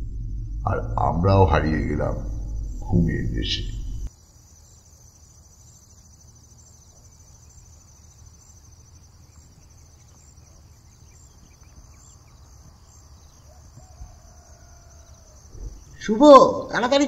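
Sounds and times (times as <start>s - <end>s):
low steady hum: 0.0s - 4.1s
crickets chirping: 0.0s - 17.0s.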